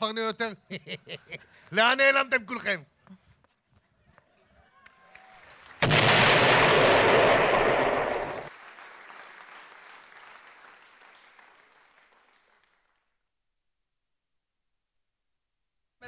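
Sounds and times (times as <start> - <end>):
rush of crackling noise: 5.8 - 8.5.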